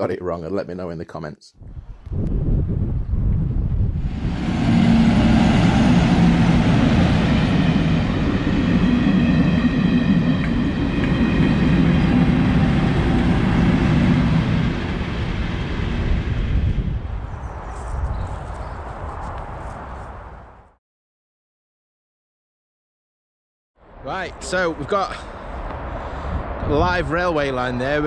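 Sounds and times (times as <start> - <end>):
train wheels on rail: 4.0 - 16.7.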